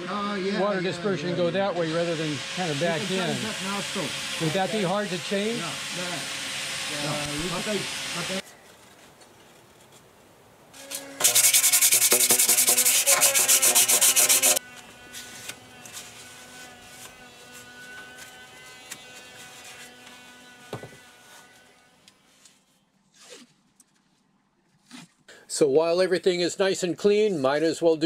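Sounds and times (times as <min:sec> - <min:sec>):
hand rubbing on metal: 0:10.9 - 0:20.4.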